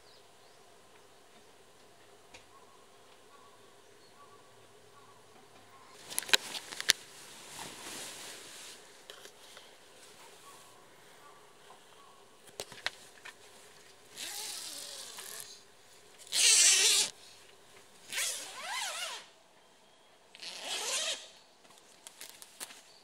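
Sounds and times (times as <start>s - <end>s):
tent zipper being pulled: 14.1s - 15.6s, 16.2s - 17.1s, 18.1s - 19.3s, 20.3s - 21.3s.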